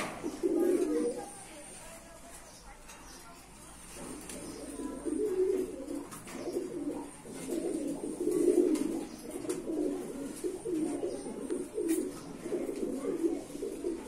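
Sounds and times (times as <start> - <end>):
pigeons cooing: 0.0 - 1.8, 3.9 - 14.0.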